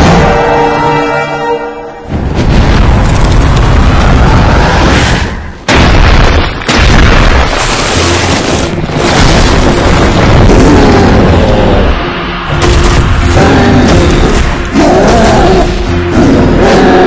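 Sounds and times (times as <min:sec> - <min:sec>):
sudden blast: 0:00.0 - 0:01.0, 0:02.0 - 0:16.6
heavy booms and rumbling impacts: 0:02.1 - 0:17.0.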